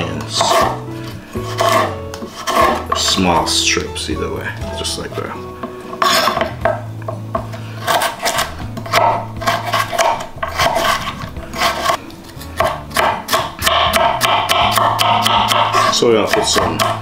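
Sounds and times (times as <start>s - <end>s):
knife slicing on wooden board: 0.4s - 0.8s, 1.4s - 3.0s, 5.9s - 6.6s, 7.8s - 17.0s.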